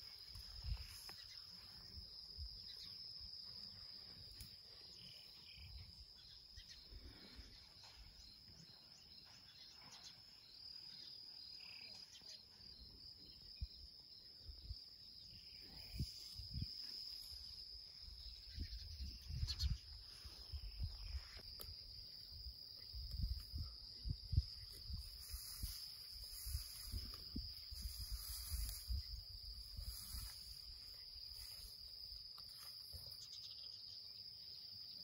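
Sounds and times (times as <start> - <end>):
insects chirring: 0.0 - 35.0.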